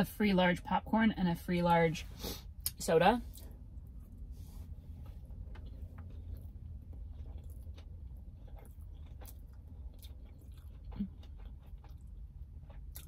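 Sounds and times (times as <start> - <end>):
low hum: 0.0 - 13.0
low rumble: 0.0 - 13.0
close chewing: 5.1 - 13.0.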